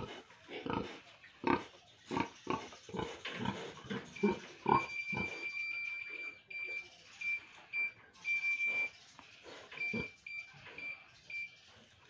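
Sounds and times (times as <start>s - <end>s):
pig grunting: 0.0s - 5.5s, 9.5s - 10.2s
steady high beep: 4.1s - 9.0s.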